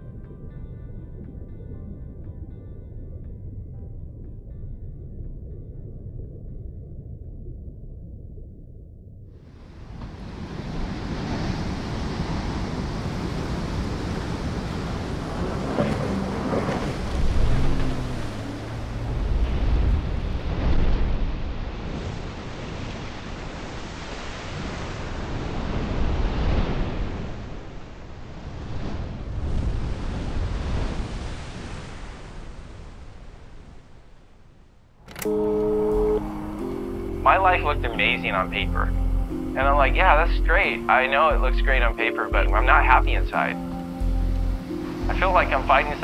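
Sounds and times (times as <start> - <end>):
ocean waves breaking: 9.6 - 34.4, 35.3 - 46.0.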